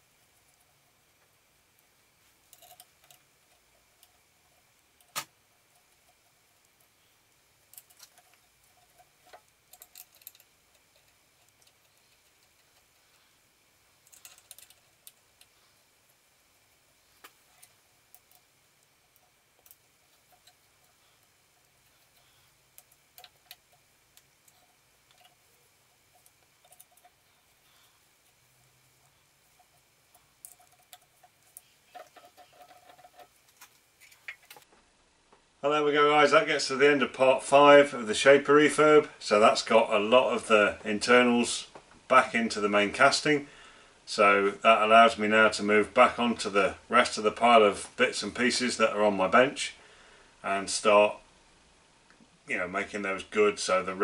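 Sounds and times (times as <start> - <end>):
small metal parts clicking: 1.7 - 16.3, 17.2 - 34.6.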